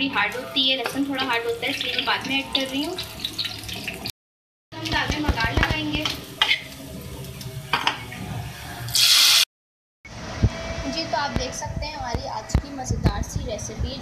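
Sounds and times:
food sizzling in hot oil: 0.0 - 4.1, 4.8 - 9.5
hot oil poured hissing: 8.5 - 9.5.

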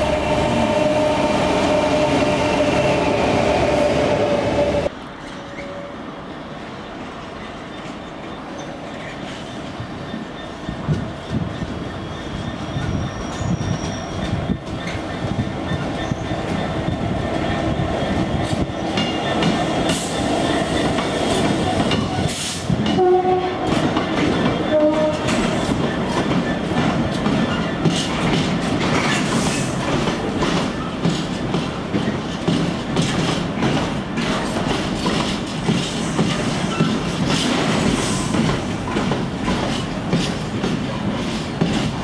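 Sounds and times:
diesel locomotive passing: 0.0 - 42.0
freight wagons clattering over rail joints: 23.6 - 42.0.

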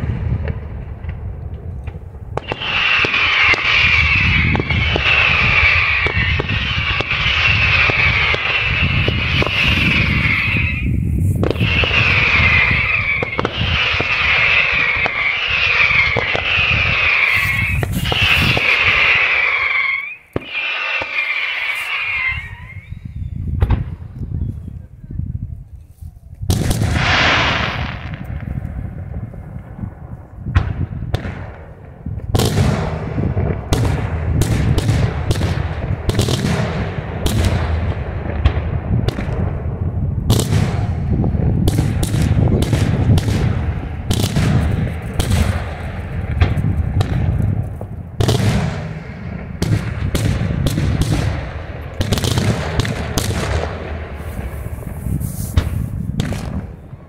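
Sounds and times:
fireworks bangs: 0.0 - 24.2, 26.5 - 57.0
low rumble: 4.1 - 15.2.

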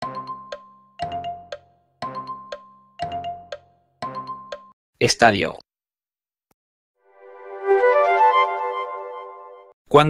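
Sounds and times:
mallet percussion countdown timer: 0.0 - 4.8.

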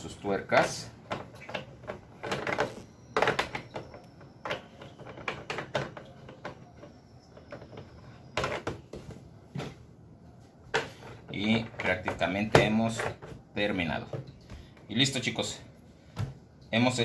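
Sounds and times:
clicks and knocks from plastic: 1.1 - 9.0.

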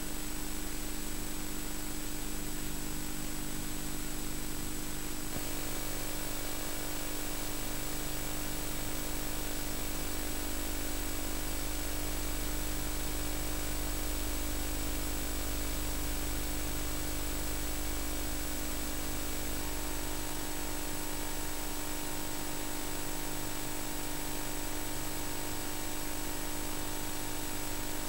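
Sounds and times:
tape hiss and low hum: 0.0 - 21.8.

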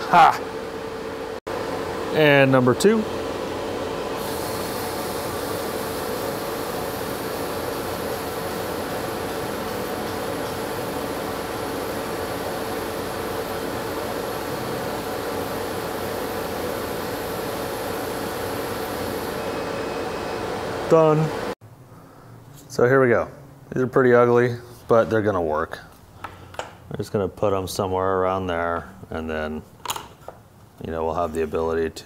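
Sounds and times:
laser cutter whirring: 2.0 - 21.6.

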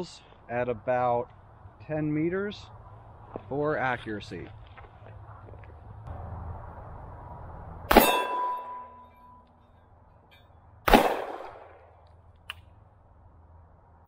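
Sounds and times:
revolver gunshots: 7.9 - 8.8, 10.8 - 12.0
metallic ring of steel target: 7.9 - 10.6.

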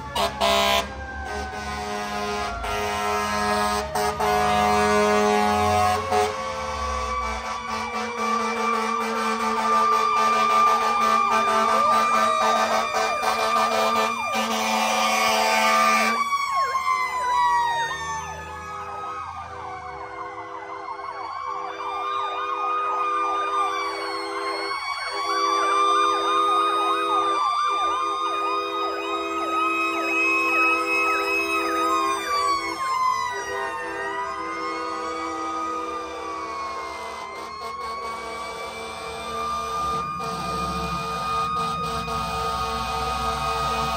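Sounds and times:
fire truck sirens wailing: 0.0 - 43.9
horn-like blare: 0.2 - 16.3, 35.7 - 43.9.

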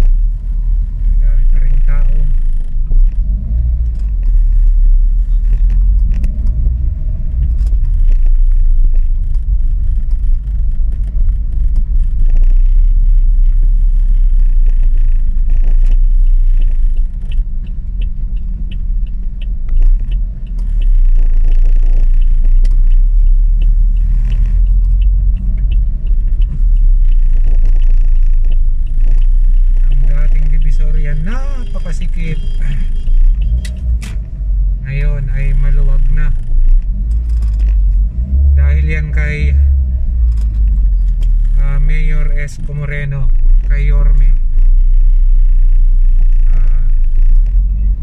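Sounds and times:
car engine and tyres rumbling: 0.0 - 48.0.

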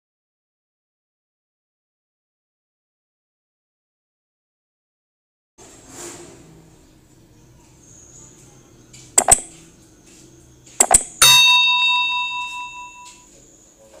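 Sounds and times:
sharp click: 9.2 - 9.5, 10.8 - 11.4
notification bell ding: 10.8 - 13.3.

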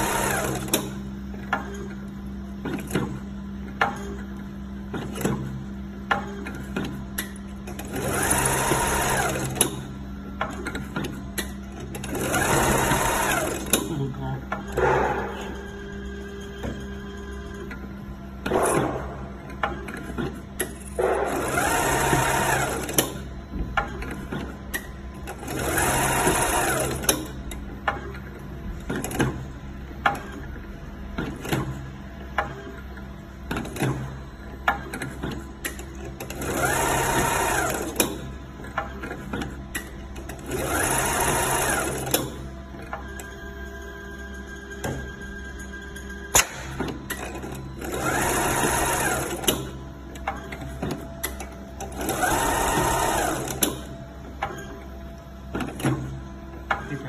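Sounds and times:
winding machine motor whine: 7.7 - 10.2, 11.2 - 27.4, 36.3 - 46.3, 47.5 - 57.0.

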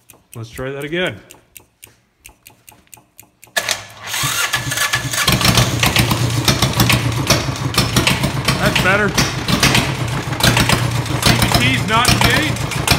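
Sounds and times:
electric fuel pump ticking: 0.0 - 12.9
starter cranking engine: 2.9 - 12.9
diesel engine idling: 4.1 - 12.9.

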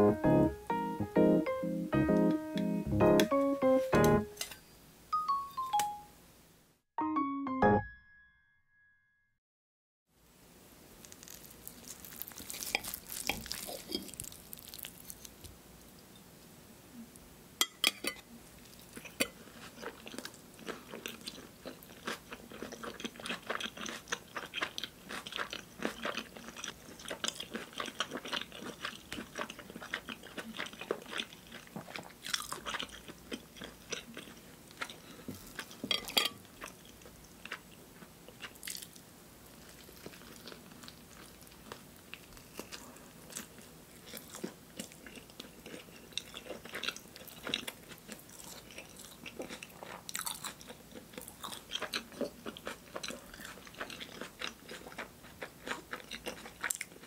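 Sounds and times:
chewing and crunching: 11.0 - 15.5, 17.9 - 57.0
knife and fork cutting: 12.4 - 14.2, 35.9 - 36.4
cutlery clinking on plate: 17.6 - 18.2, 35.8 - 36.4.

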